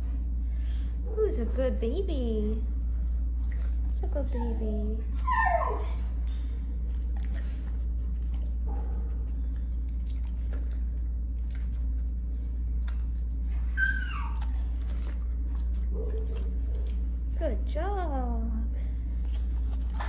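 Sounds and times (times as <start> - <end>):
steady low hum: 0.0 - 20.0
dog whining: 4.2 - 6.2, 7.2 - 7.8, 13.5 - 15.2, 15.9 - 17.1.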